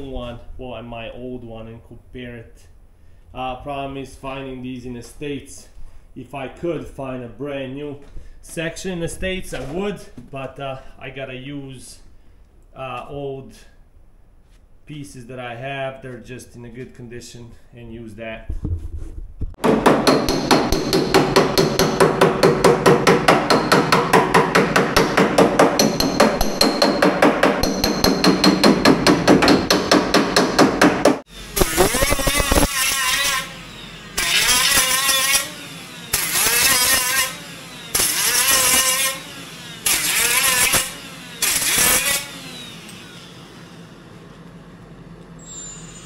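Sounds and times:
hammering on sheet metal: 19.6 - 31.2
angle grinder cutting steel: 31.3 - 43.9.

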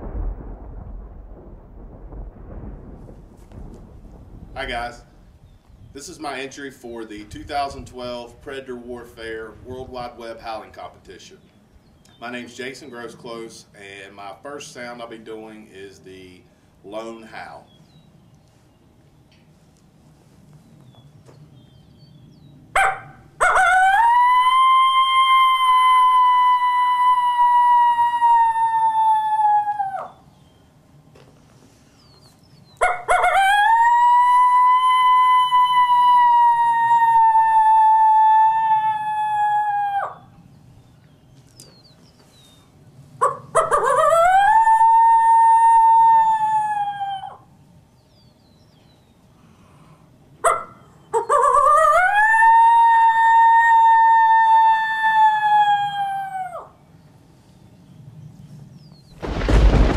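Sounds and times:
coyote howler call: 22.8 - 30.3, 32.8 - 40.4, 43.2 - 47.5, 50.4 - 56.8.

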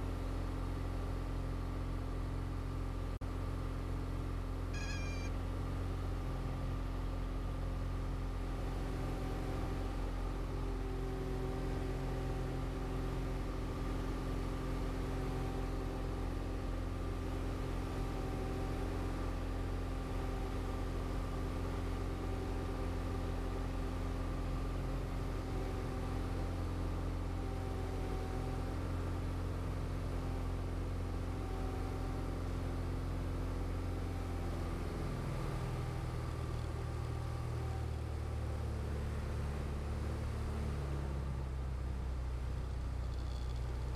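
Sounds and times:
light aircraft piston engine: 0.0 - 43.9.

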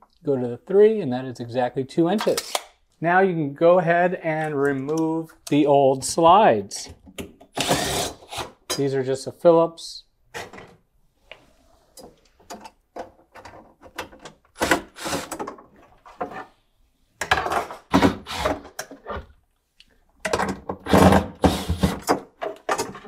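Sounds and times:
cordless drill driving screws: 7.6 - 8.5, 14.6 - 15.4.

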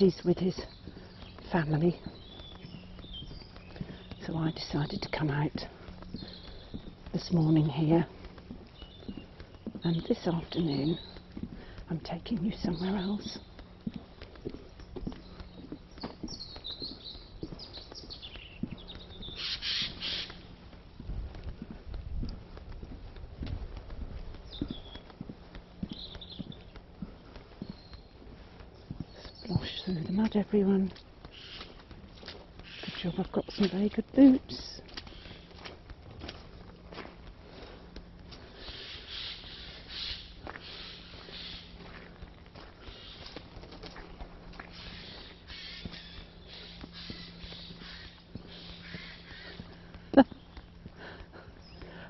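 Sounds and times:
boots squelching on muddy path: 0.0 - 52.0
footsteps on wooden boardwalk: 0.0 - 52.0
small birds chirping: 0.0 - 52.0.

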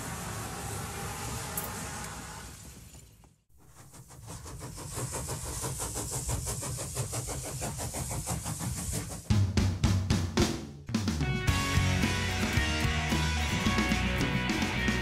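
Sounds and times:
music with loud drum beat: 9.2 - 15.0.

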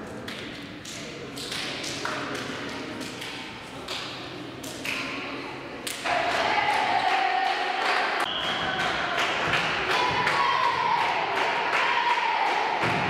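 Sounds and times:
crowd cheering and shouting: 6.1 - 13.0.

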